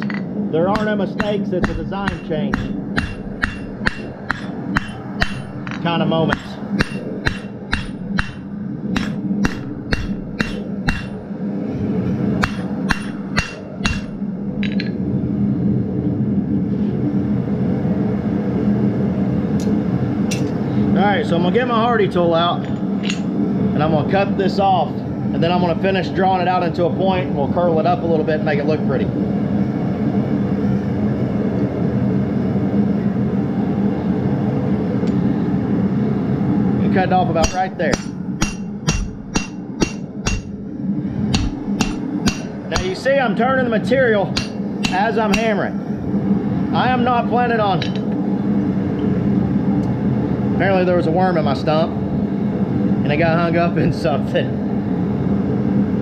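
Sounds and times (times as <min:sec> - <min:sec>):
hammer striking steel on anvil: 0:00.0 - 0:11.2, 0:12.4 - 0:15.0, 0:37.4 - 0:40.6, 0:41.3 - 0:43.1, 0:44.3 - 0:45.6
steady low hum: 0:00.0 - 0:56.0.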